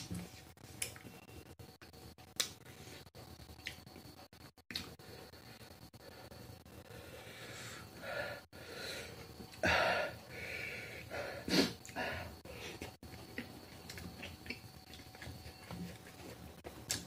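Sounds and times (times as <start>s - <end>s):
mouth clicks and smacks: 4.7s - 5.0s
breathy bursts: 6.0s - 12.8s
person chewing: 12.7s - 17.0s.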